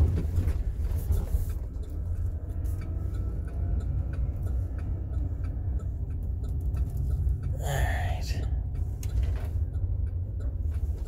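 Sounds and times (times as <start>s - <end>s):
engine and tyres rumbling: 0.0s - 11.0s
turn signal ticking: 0.0s - 11.0s.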